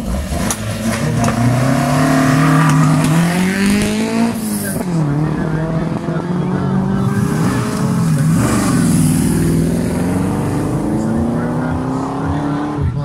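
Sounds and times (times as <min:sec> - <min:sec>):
car engines accelerating: 0:00.0 - 0:13.0.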